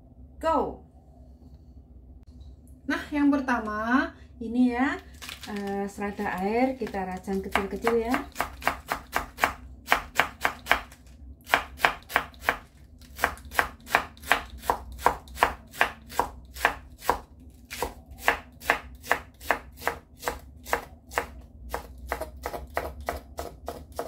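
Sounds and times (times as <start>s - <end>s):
knife chopping on wooden board: 7.5s - 24.0s.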